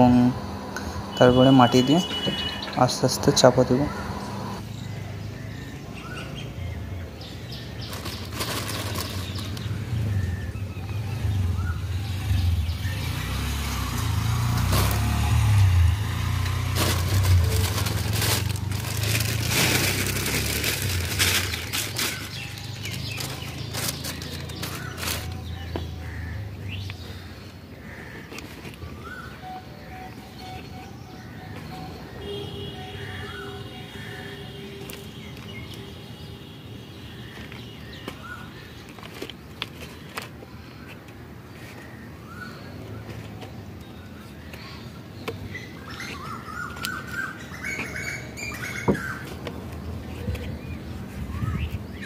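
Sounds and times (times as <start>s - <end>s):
bird chirps: 0.4s - 4.6s, 28.9s - 38.7s
soil crackling under hands: 14.5s - 26.2s.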